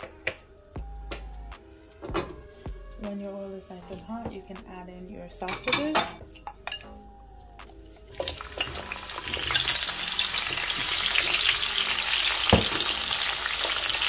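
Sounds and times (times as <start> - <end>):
sausage sizzling in hot oil: 8.0 - 14.0
knock against the pan: 12.5 - 12.9.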